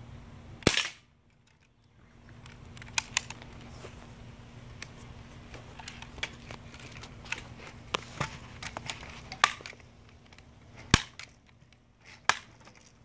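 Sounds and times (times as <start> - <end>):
bb gun crack: 0.6 - 1.1, 2.4 - 3.6, 5.8 - 11.4, 12.0 - 12.9
sharp clicks: 0.6 - 3.6.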